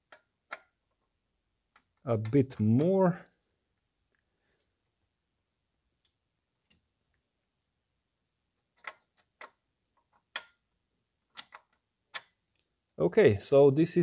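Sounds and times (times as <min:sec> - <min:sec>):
sharp metal clicks and taps: 0:10.2 - 0:10.6.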